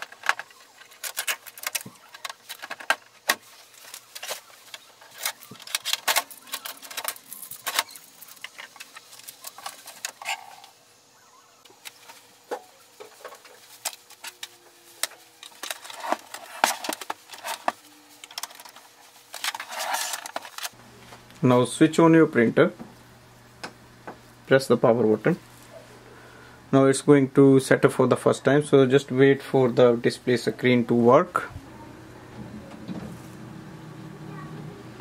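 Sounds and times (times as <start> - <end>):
plastic crinkling and rustling: 0.0 - 10.7, 11.8 - 21.3.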